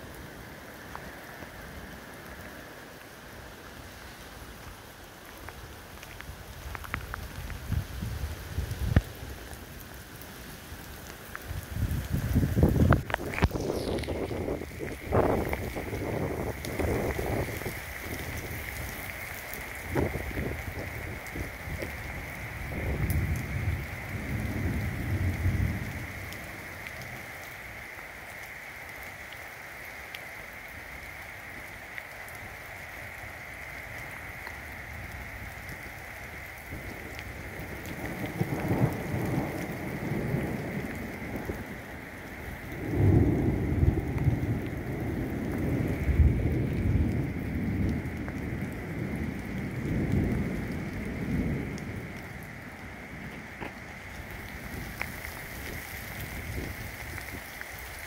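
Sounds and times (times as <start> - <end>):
rain hissing on a wet road: 0.0 - 58.0
rolling thunder: 11.7 - 19.1, 19.8 - 21.9, 42.6 - 53.5.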